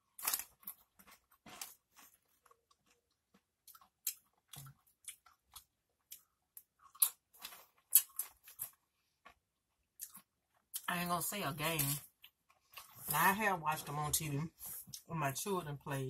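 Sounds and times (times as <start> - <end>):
chewing crunchy chips: 0.0 - 9.4, 10.0 - 10.9.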